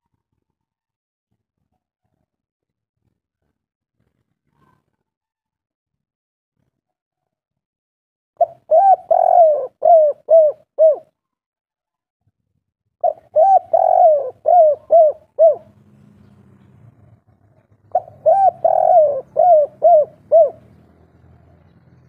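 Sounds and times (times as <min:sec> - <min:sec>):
dove cooing: 0:08.4 - 0:11.1, 0:13.0 - 0:16.3, 0:17.4 - 0:21.0.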